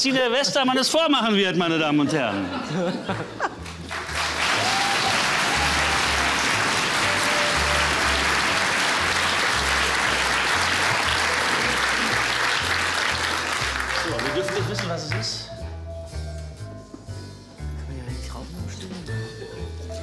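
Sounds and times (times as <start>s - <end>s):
audience applauding: 3.1s - 15.4s.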